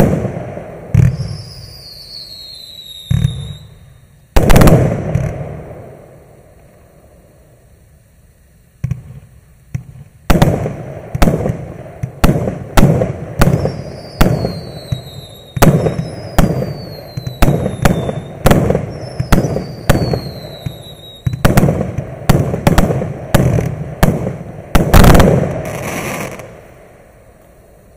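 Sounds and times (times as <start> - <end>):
firework bangs: 0.0 - 6.4, 8.8 - 27.1
firework whistles falling in pitch: 0.9 - 5.5, 13.4 - 22.0, 24.9 - 26.5.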